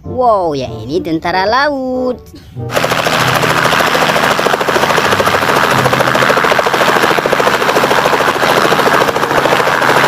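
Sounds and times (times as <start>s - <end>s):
helicopter engine: 2.7s - 10.0s
helicopter rotor beating: 2.7s - 10.0s.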